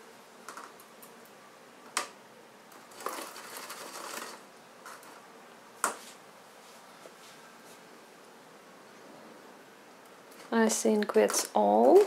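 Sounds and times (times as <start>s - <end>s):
scraping and rustling: 2.7s - 7.9s, 10.2s - 12.0s.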